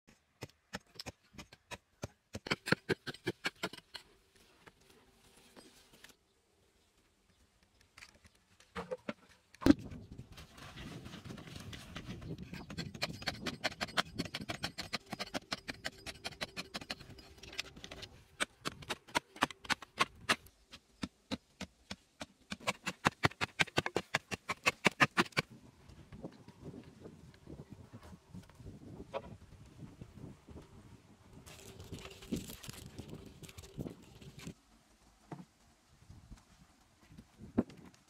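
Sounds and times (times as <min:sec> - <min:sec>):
gravelly soil crunching and scraping: 0:00.1 - 0:21.0, 0:22.0 - 0:38.0.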